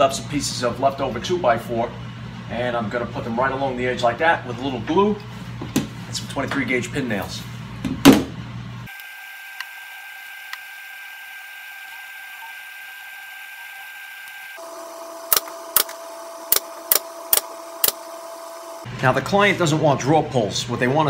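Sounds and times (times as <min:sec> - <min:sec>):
pin nailer firing: 0:15.3 - 0:18.1.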